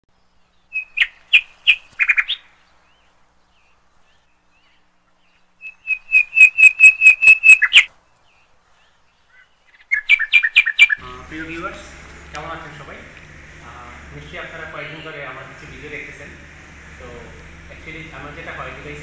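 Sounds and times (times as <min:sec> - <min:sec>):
small bird chirping: 0:00.2 - 0:11.0.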